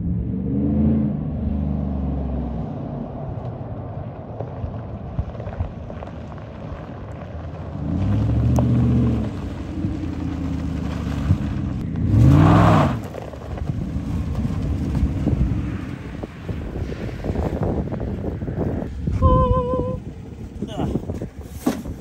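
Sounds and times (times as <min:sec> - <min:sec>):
pickup truck engine revving: 0:07.6 - 0:17.9.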